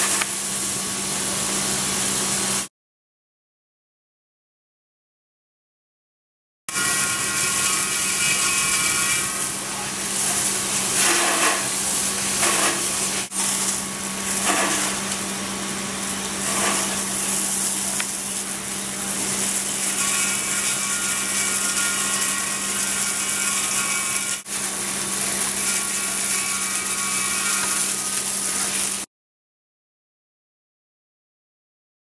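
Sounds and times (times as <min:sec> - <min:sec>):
gas escaping and burning: 0:00.0 - 0:01.2, 0:09.2 - 0:25.9
hissing water spray: 0:00.0 - 0:02.7, 0:06.7 - 0:29.1.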